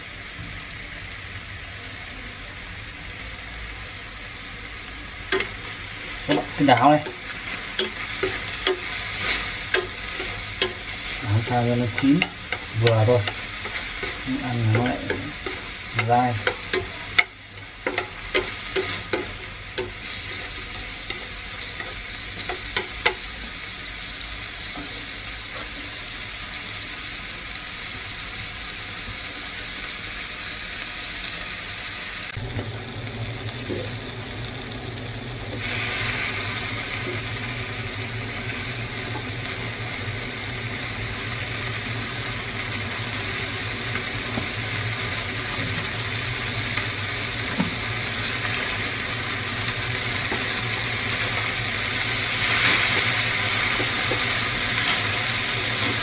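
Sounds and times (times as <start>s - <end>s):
meat sizzling in a frying pan: 0.0s - 56.0s
utensil clicking against pan: 6.3s - 10.9s, 11.8s - 20.1s.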